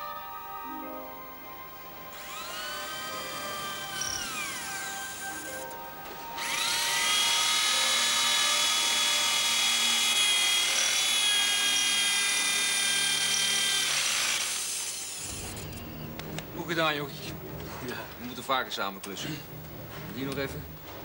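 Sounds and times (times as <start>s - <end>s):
electric drill spinning: 2.1s - 5.7s, 6.4s - 15.8s.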